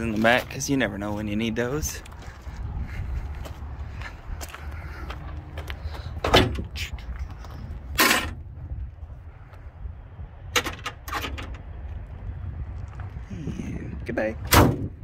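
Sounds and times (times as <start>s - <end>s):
steady low rumble: 0.0s - 15.0s
sharp knocks and clunks: 6.2s - 6.8s, 10.5s - 11.6s.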